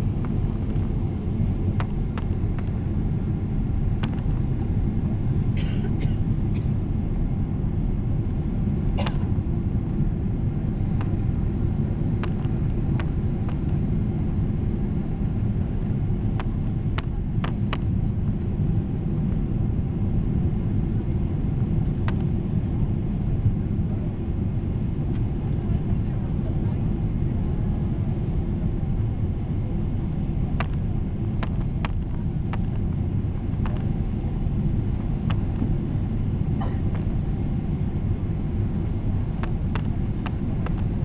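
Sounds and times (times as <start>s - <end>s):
airliner cabin engine noise: 0.0s - 41.0s.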